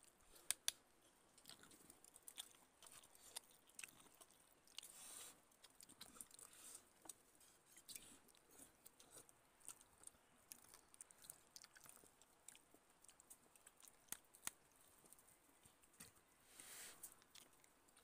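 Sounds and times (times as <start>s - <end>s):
soft chewing: 0.0s - 18.0s
small sharp clicks: 0.4s - 0.8s.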